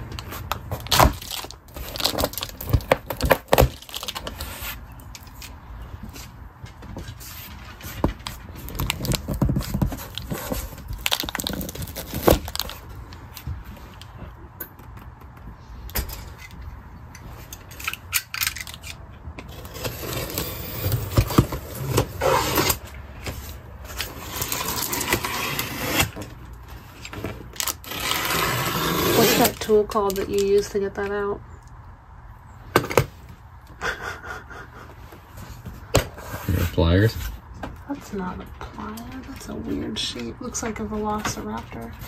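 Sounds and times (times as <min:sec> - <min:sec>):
scraping and rustling on cardboard: 0:00.0 - 0:12.9, 0:19.5 - 0:29.8, 0:35.0 - 0:37.4.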